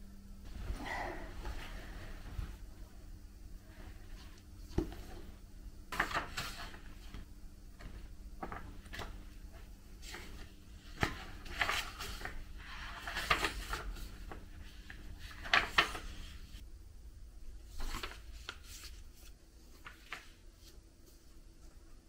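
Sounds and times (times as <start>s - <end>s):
book pages rustling and turning: 3.6s - 16.6s, 17.7s - 21.4s.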